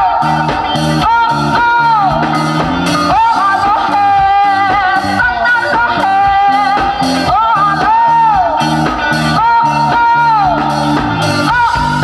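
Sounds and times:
bass guitar: 0.0s - 12.0s
drum kit steady beat: 0.0s - 12.0s
electric guitar: 0.0s - 12.0s
woman singing: 0.0s - 12.0s.

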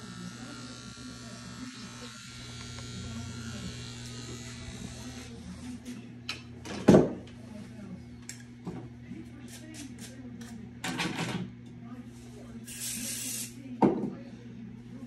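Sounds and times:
electric hair clippers humming: 0.0s - 6.6s.

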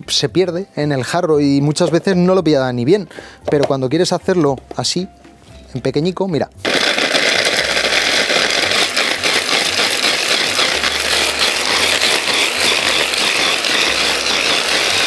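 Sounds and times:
electric hand blender running: 6.6s - 15.0s
cheese chunks rattling in bowl: 6.7s - 15.0s.

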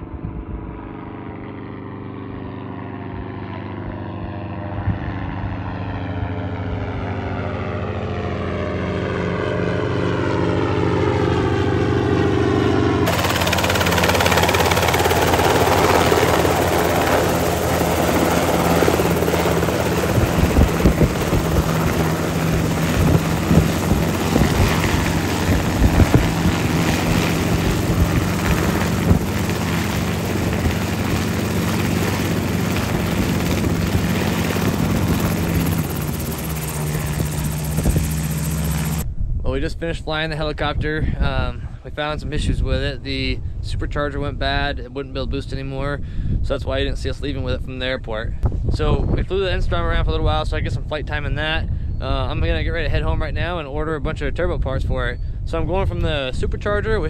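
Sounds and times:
helicopter rotors turning on ground: 0.0s - 39.1s
helicopter flying past: 0.0s - 39.2s.

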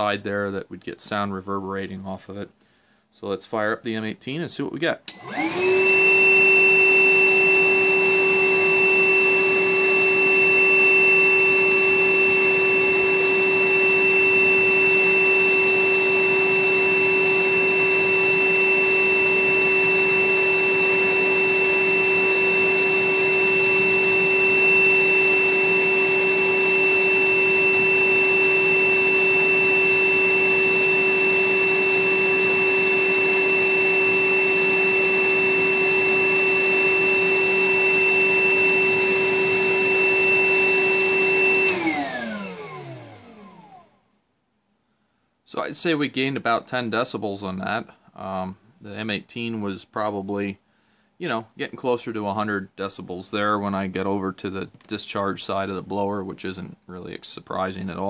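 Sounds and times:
motor winding down: 5.1s - 43.9s
wet-dry vacuum running: 5.1s - 44.0s.

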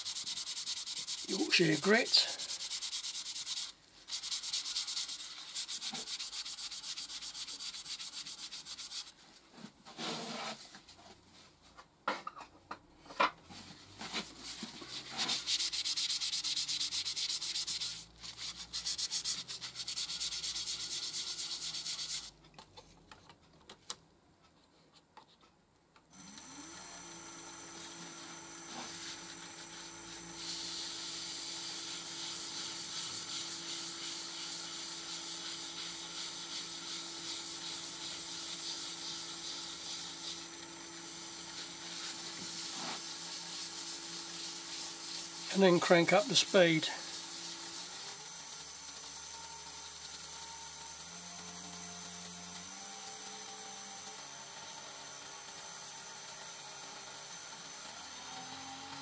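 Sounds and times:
paper towel rubbing wood: 0.0s - 9.2s, 13.9s - 22.4s, 35.4s - 40.4s, 41.5s - 46.7s
lathe motor whining: 47.0s - 59.0s.

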